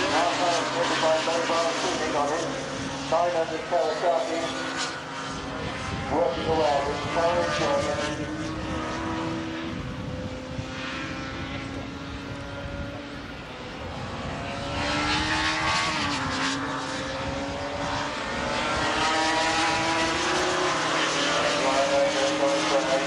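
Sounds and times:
racing motorcycles passing: 0.0 - 23.0.

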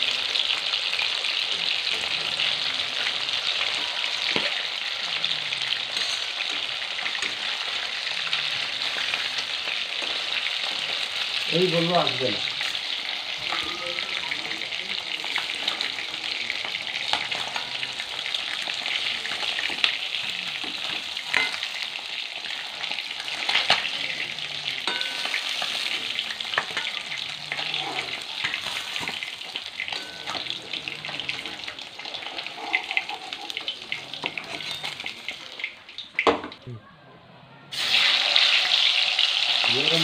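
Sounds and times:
fish frying in hot oil: 0.0 - 36.3, 37.7 - 40.0
metal spatula scraping wok: 22.8 - 35.4.

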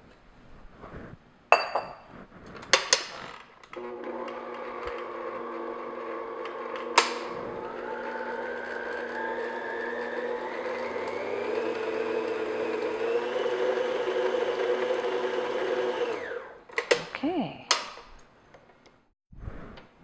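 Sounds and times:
stand mixer motor hum and whine: 3.8 - 16.6.

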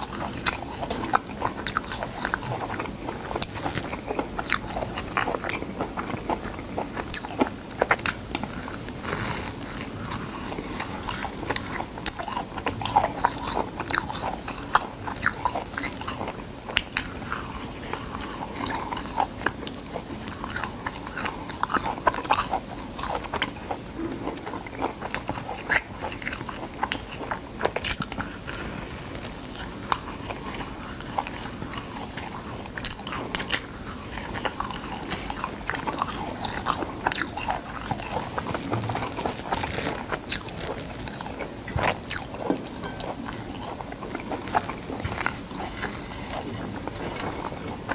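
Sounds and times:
seaweed crackling and crunching: 25.0 - 47.9.

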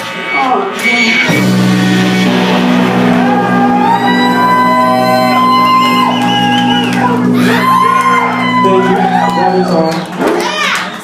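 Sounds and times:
wavering high note: 0.9 - 9.7
higher guitar notes ringing: 1.0 - 10.0
rock band sustained chord: 1.3 - 9.7.

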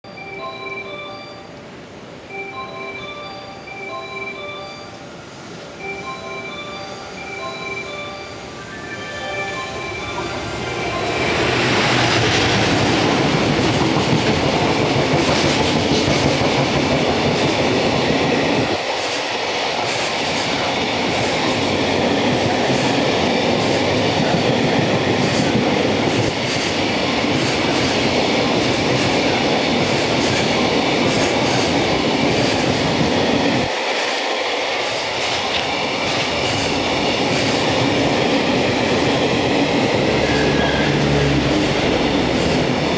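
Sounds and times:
electric locomotive passing: 0.1 - 42.9
train wheels rumbling on rails: 8.6 - 42.9.

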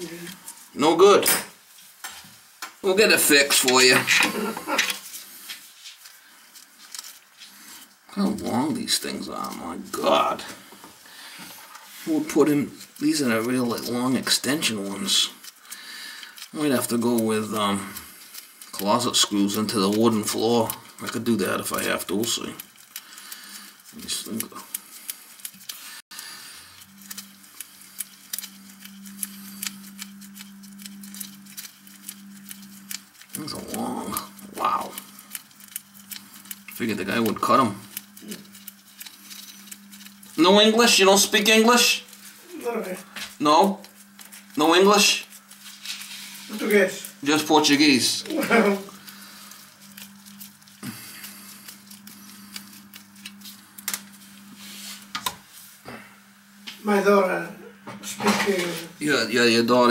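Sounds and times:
steady low hum: 2.9 - 59.9.

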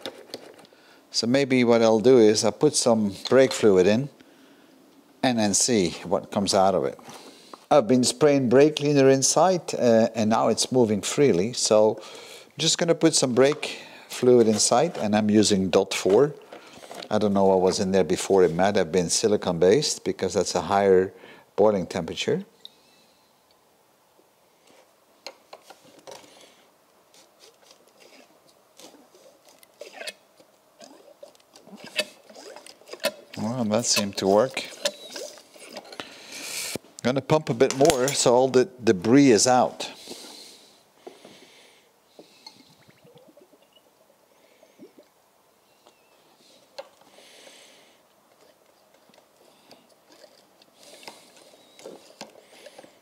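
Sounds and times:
fluid squelching: 27.4 - 36.0.

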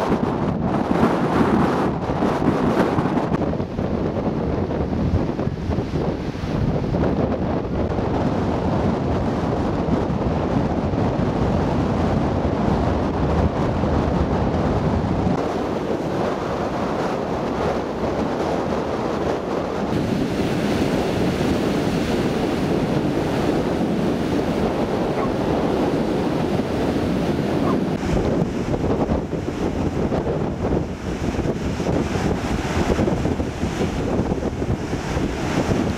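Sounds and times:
surf breaking and washing: 0.0 - 35.9
wind buffeting microphone: 0.0 - 35.9.

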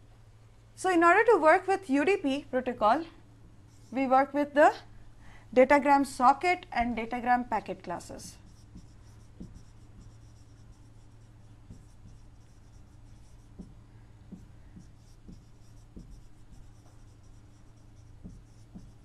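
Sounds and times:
steady low hum: 0.0 - 19.0
marker writing on whiteboard: 8.0 - 19.0.

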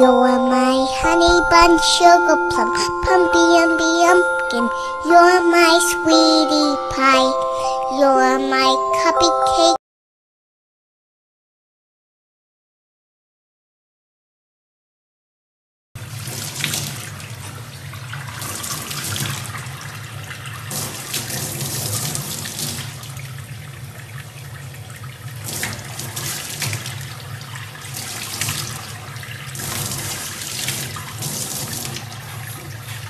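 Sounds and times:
tap water running into sink: 16.0 - 33.0.

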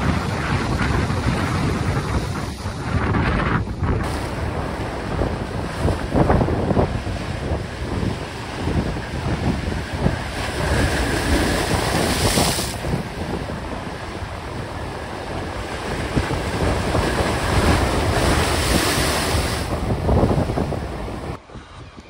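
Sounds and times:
waves crashing on rocks: 0.0 - 21.4
wind buffeting microphone: 0.0 - 22.0.

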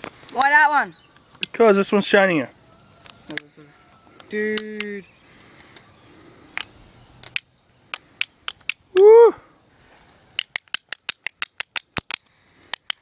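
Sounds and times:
sharp clicks: 6.5 - 9.1, 10.4 - 13.0
person shouting woo: 8.9 - 9.5.

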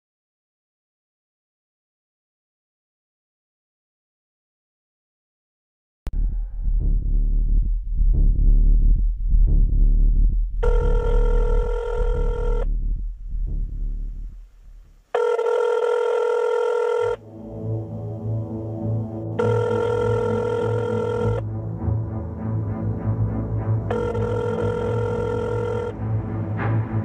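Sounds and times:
telephone ringing tone: 10.6 - 12.7, 15.1 - 17.2, 19.4 - 21.4, 23.9 - 25.9
dark background music: 17.2 - 27.0.

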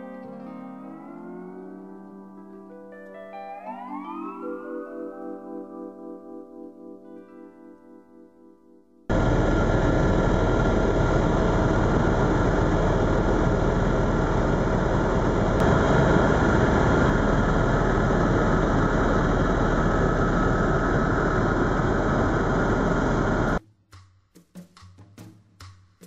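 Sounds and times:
faint steady tones: 9.0 - 23.6
helicopter turbine and rotor drone: 9.1 - 23.6.

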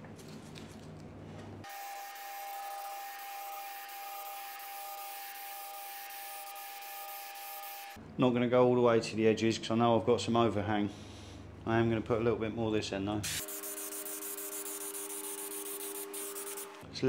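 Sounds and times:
aerosol can hissing: 13.3 - 16.8.

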